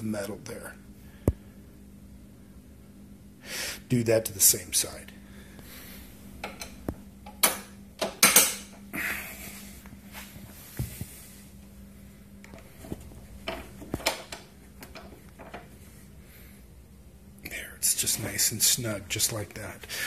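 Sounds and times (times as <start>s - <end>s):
clicks and knocks of metal bracket: 6.4s - 8.8s.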